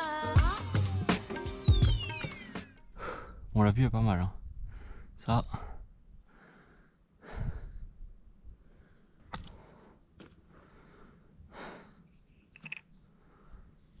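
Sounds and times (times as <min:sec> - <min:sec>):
sharp clicks: 0:12.5 - 0:12.9.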